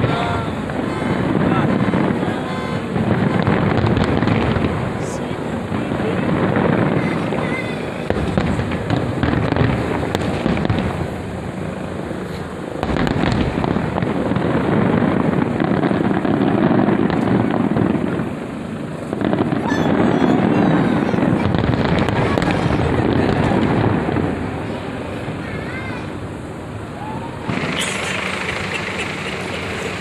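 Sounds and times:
fireworks shells bursting: 0:27.4 - 0:30.0.

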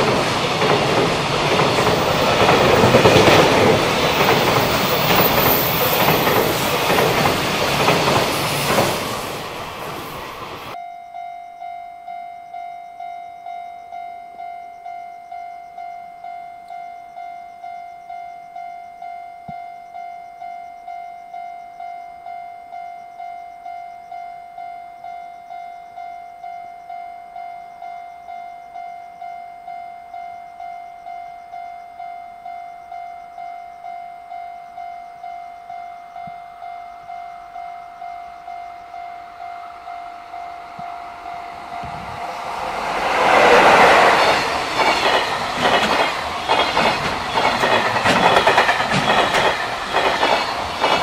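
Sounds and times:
freight train rumble: 0:00.0 - 0:10.8, 0:37.5 - 0:51.0
level-crossing warning bell: 0:00.0 - 0:51.0.

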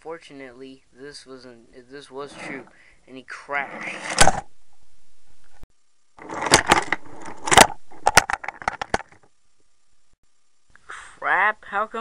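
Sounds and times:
toy train cars crashing: 0:06.2 - 0:09.2.

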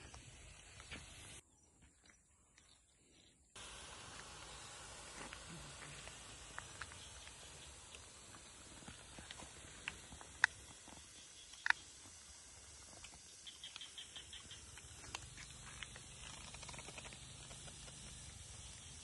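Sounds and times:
sharp pops: 0:03.6 - 0:19.0
snails crackling on hot rock: 0:03.6 - 0:19.0
faint ticks: 0:12.9 - 0:18.2.

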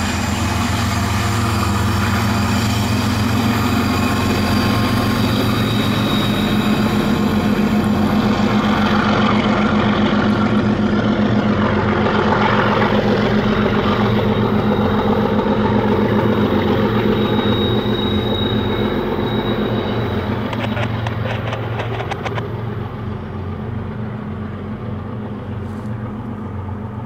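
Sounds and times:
diesel locomotive engine droning: 0:00.0 - 0:27.0.

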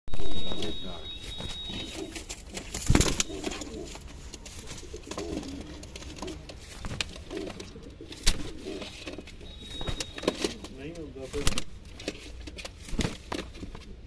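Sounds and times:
pigeons cooing: 0:00.2 - 0:11.3.

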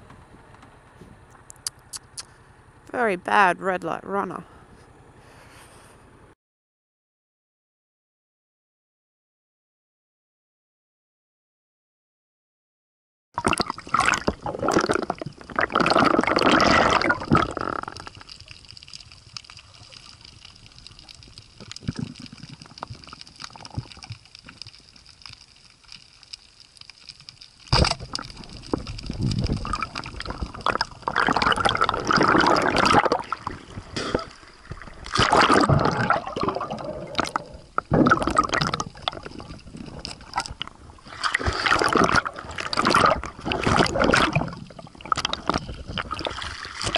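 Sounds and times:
water gurgling and bubbling underwater: 0:13.4 - 0:46.9.

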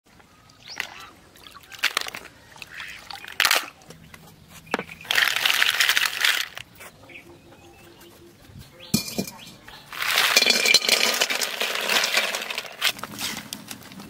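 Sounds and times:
water sloshing and splashing: 0:00.6 - 0:04.2
shells rattling in a basket: 0:05.0 - 0:06.6, 0:09.0 - 0:13.0.

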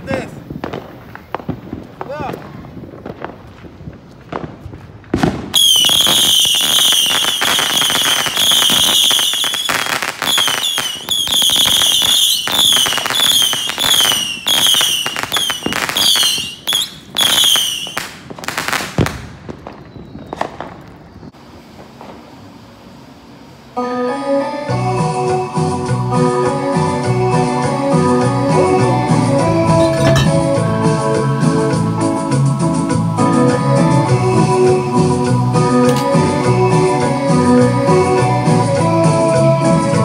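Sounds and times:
firework whistles: 0:00.0 - 0:23.6
firework crackling: 0:00.0 - 0:23.8, 0:25.3 - 0:40.0.

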